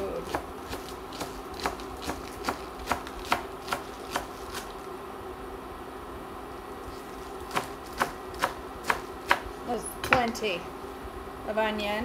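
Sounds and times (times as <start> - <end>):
knife chopping on cutting board: 0.2 - 4.7, 7.5 - 10.4.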